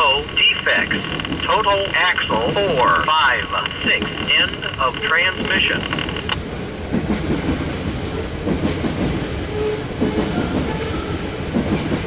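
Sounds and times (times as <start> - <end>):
freight train rumbling past: 0.0 - 12.0.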